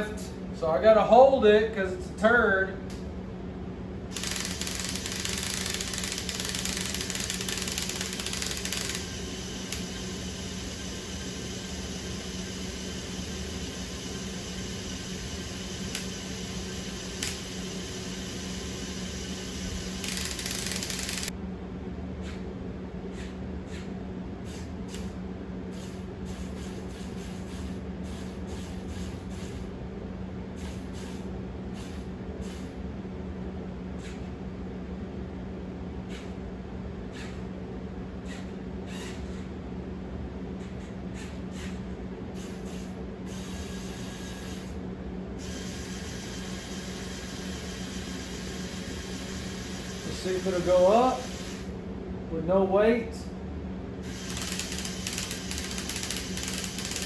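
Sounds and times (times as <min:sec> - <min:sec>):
gears clicking: 0:04.1 - 0:10.0, 0:17.1 - 0:17.5, 0:20.0 - 0:21.3, 0:54.1 - 0:57.0
toy electric motors whirring: 0:04.1 - 0:10.1, 0:15.8 - 0:17.6, 0:19.4 - 0:21.3, 0:54.0 - 0:57.0.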